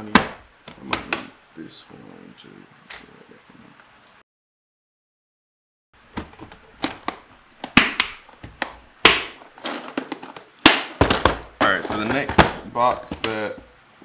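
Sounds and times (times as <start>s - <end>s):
plastic box knocking on wood: 10.0s - 13.4s.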